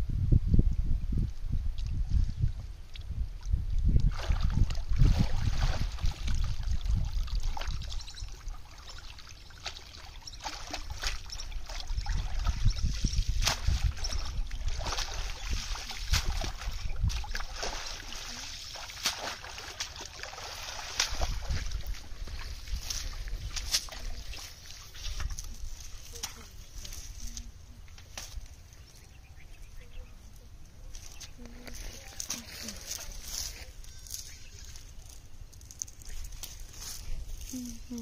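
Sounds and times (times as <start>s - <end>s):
water splashing and dripping: 2.9s - 26.7s
legs wading through water: 3.9s - 27.5s.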